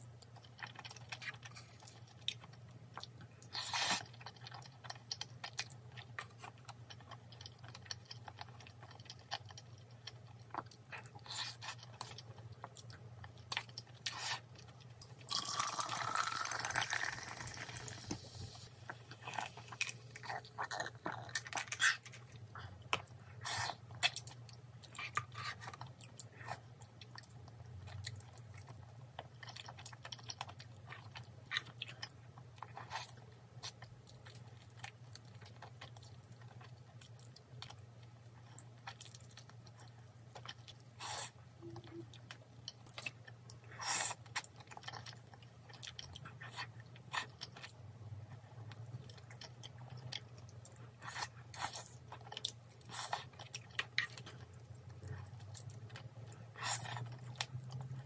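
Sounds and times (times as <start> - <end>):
person chewing crunchy food: 0.0 - 58.0.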